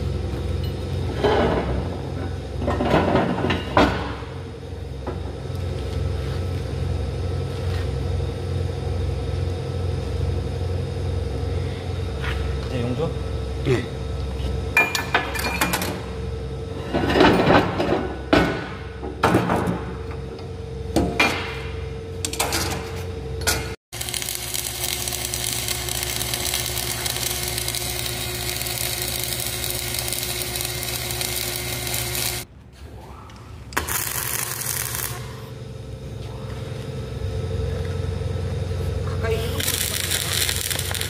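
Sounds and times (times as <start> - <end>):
steady hum: 0.0 - 41.0
welding arc crackling: 23.9 - 32.5, 33.7 - 35.5, 39.3 - 41.0.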